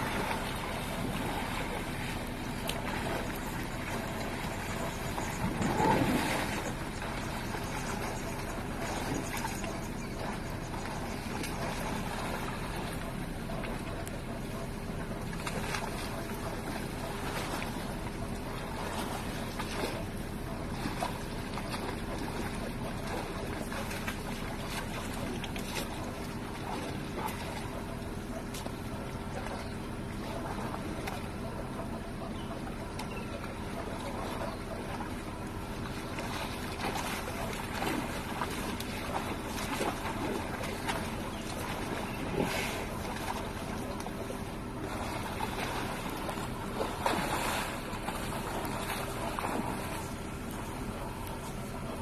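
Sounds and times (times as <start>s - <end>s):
elephants splashing in water: 0.0s - 52.0s
engine idling drone: 0.0s - 52.0s.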